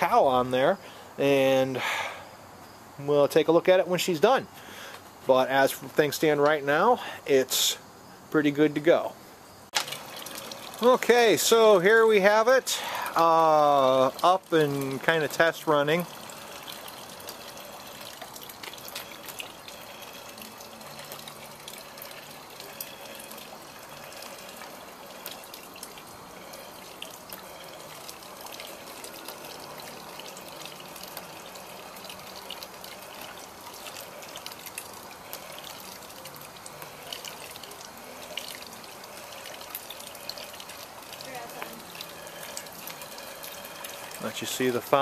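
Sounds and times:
water splashing and trickling: 9.7s - 45.0s.

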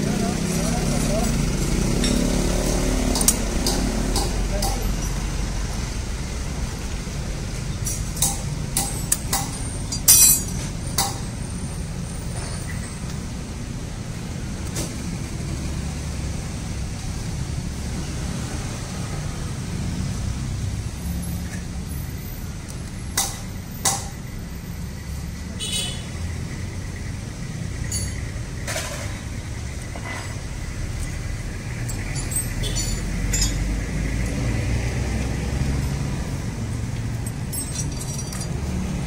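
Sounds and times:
tools clinking on metal: 3.1s - 5.2s, 7.8s - 11.2s, 27.9s - 28.2s, 31.8s - 33.7s, 37.1s - 38.7s.

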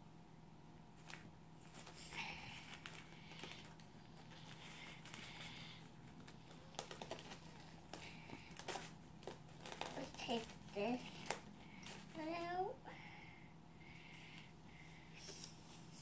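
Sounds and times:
cardboard packaging rustling: 1.0s - 12.6s.

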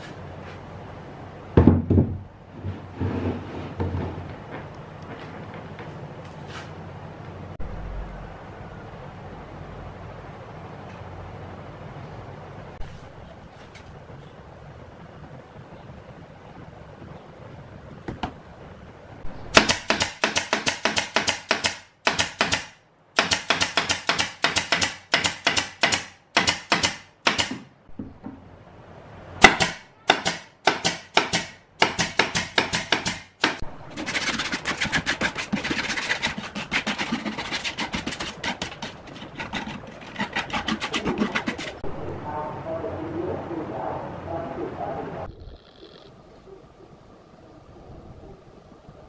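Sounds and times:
nail gun firing into plywood: 19.5s - 27.7s, 29.4s - 33.6s.

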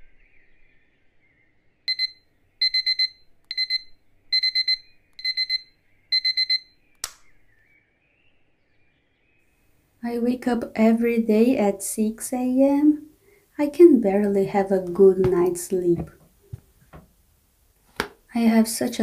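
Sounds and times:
digital alarm clock beeping: 1.9s - 6.8s
sharp click: 7.0s - 7.3s.

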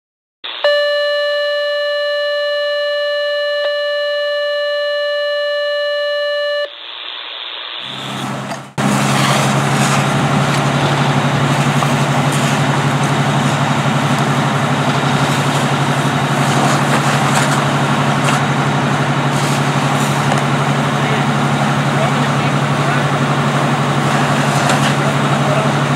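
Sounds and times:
steady electronic tone: 0.5s - 11.5s
fire engine pump running: 7.8s - 25.9s.

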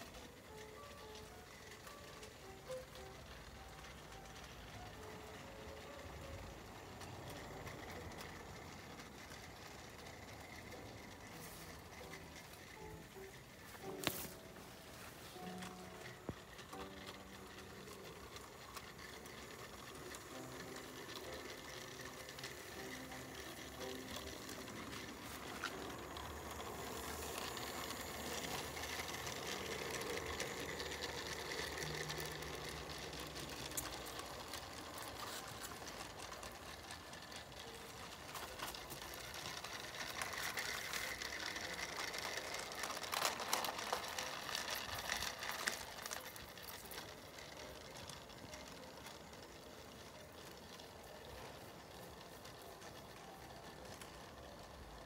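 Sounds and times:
model train running on track: 0.0s - 55.0s.

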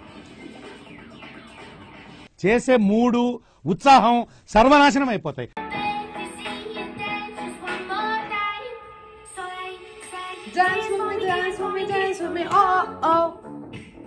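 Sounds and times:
high female singing voice: 5.6s - 13.4s
backing music: 5.6s - 14.0s.

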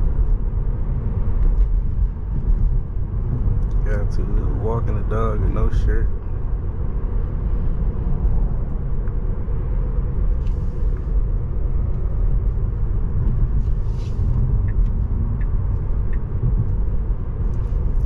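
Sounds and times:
tyre and road hum in car cabin: 0.0s - 18.0s.

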